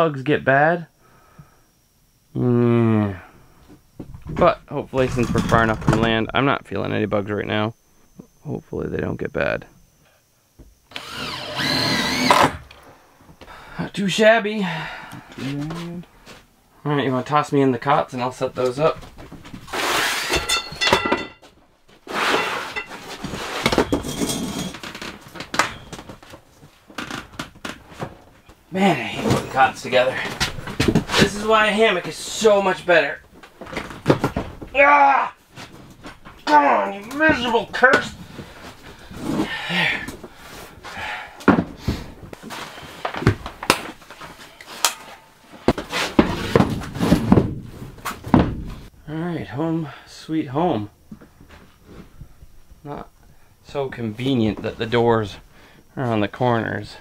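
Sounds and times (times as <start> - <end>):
metal frame clinking: 20.2 - 21.4.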